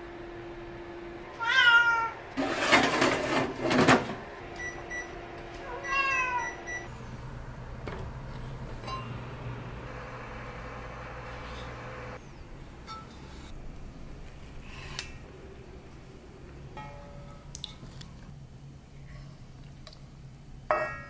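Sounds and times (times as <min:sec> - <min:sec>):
meow-like calls: 0:05.6 - 0:06.7
short high beeps: 0:05.8 - 0:06.9.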